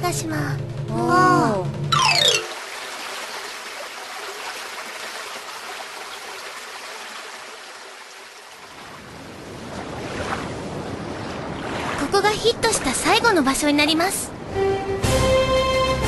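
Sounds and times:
sea waves rushing: 0:02.0 - 0:14.6.

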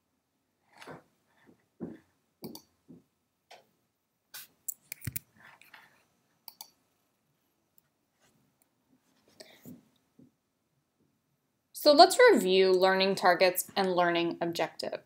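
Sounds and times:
computer clicks: 0:04.7 - 0:05.3, 0:06.5 - 0:06.8.

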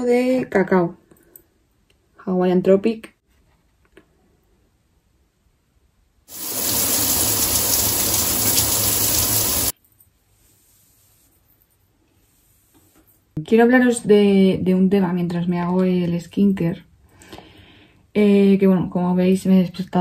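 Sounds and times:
shower head spraying water: 0:06.3 - 0:09.7.

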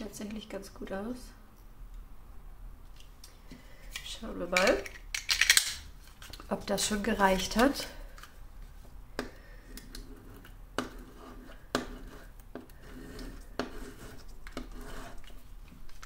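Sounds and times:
roller scraping over paper: 0:10.0 - 0:15.4.

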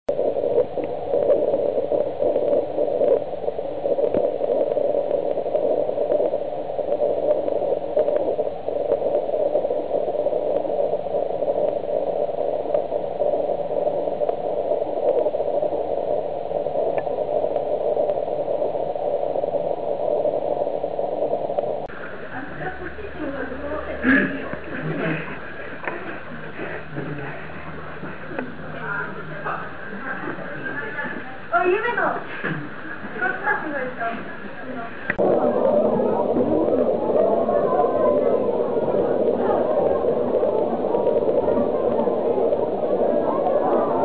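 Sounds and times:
steady rushing noise: 0:00.0 - 0:44.0
faint clicks: 0:00.2 - 0:22.8, 0:24.5 - 0:27.4, 0:35.0 - 0:35.2.

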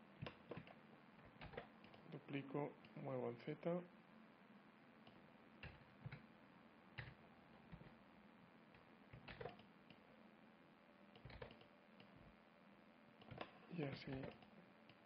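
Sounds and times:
computer mouse and keyboard clicks: 0:00.2 - 0:02.1, 0:05.0 - 0:06.3, 0:07.0 - 0:08.0, 0:08.8 - 0:10.0, 0:11.2 - 0:12.2, 0:13.2 - 0:15.0.

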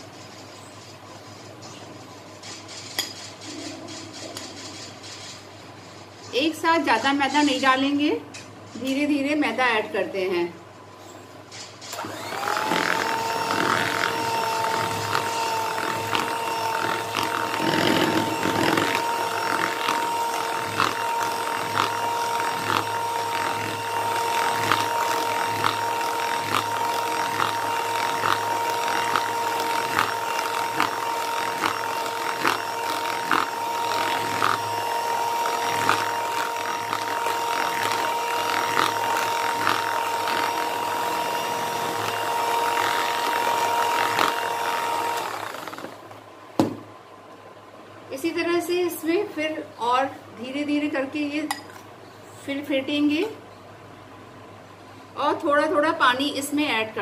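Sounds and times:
electric hand mixer whine: 0:11.9 - 0:46.2.

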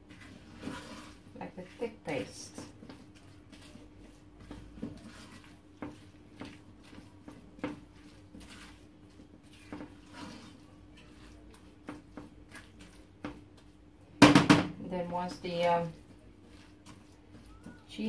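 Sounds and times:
spatula scraping metal saucepan: 0:00.1 - 0:02.5, 0:07.7 - 0:11.3.

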